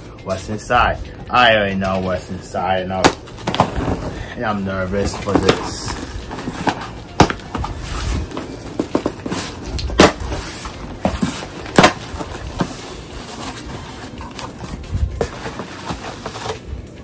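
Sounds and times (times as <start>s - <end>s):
cardboard box rustling and scraping: 3.4s - 16.7s
sharp knocks on cardboard box: 6.6s - 7.7s, 11.0s - 12.7s.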